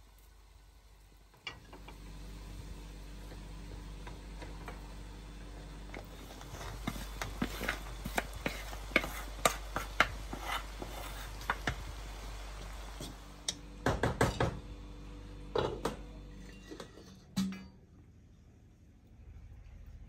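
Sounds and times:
spatula scraping metal colander: 0:06.0 - 0:11.7
spatula knocking: 0:06.2 - 0:11.9.

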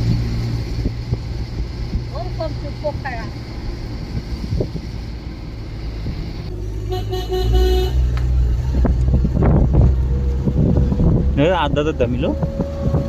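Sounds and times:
vehicle driving rumble: 0:00.0 - 0:13.0
vehicle horn tooting: 0:06.8 - 0:08.2.

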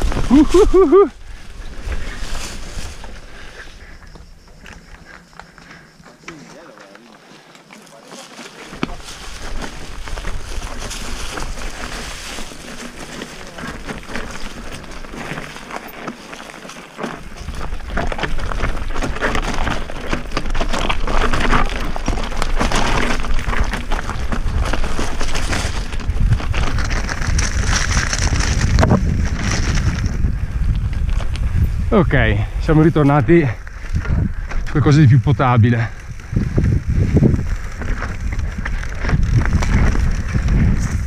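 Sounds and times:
bike tyres crunching over stones: 0:00.0 - 0:41.0
bike clattering: 0:08.4 - 0:31.9, 0:36.1 - 0:41.0
wind buffeting on microphone: 0:17.2 - 0:41.0.

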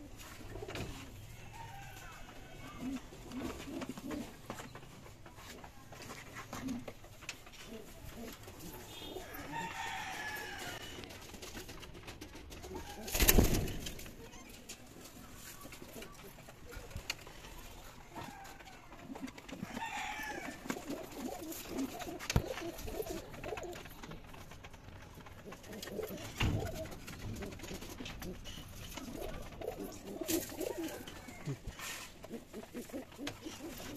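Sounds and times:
pigeons cooing: 0:19.1 - 0:24.2, 0:25.4 - 0:33.9.

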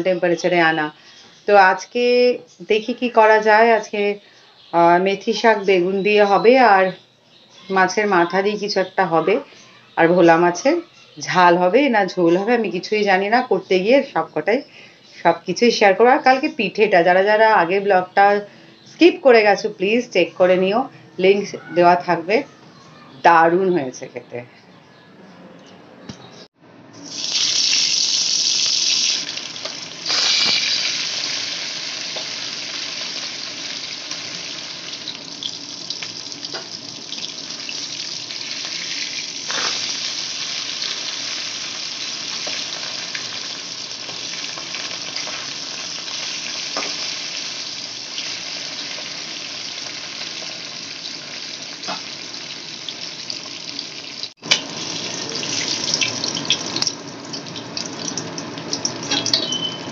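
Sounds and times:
fish sizzling in hot oil: 0:27.0 - 0:59.9.

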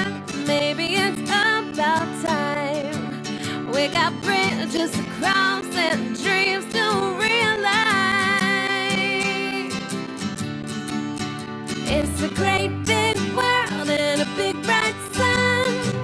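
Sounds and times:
plucked acoustic guitar: 0:00.0 - 0:16.0
person singing: 0:11.8 - 0:16.0.

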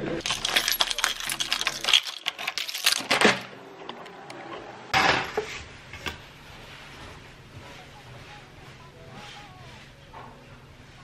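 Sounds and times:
handling clicks and rattles: 0:00.2 - 0:04.2.

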